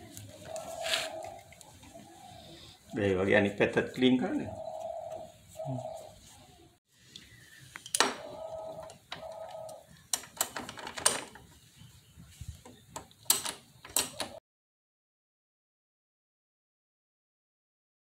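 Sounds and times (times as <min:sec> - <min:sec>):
dove cooing: 0:00.0 - 0:03.0, 0:04.0 - 0:06.8, 0:08.0 - 0:10.8.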